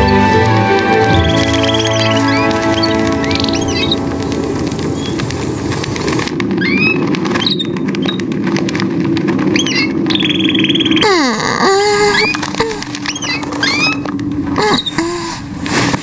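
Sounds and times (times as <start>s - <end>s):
flock wings fluttering: 0.0s - 16.0s
small birds chirping: 1.0s - 5.3s, 6.6s - 8.3s, 9.5s - 15.0s.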